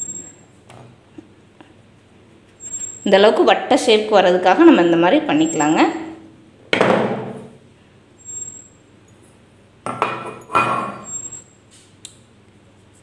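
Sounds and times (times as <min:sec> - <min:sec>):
metal bowl knocking and ringing: 0:09.9 - 0:11.1.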